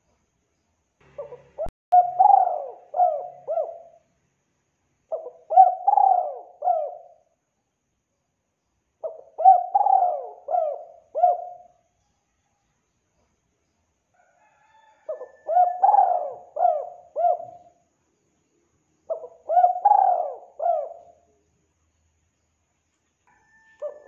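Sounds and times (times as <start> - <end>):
dove cooing: 1.1 - 4.0, 5.1 - 7.3, 9.0 - 11.8, 15.0 - 17.8, 19.1 - 21.3, 23.8 - 24.0.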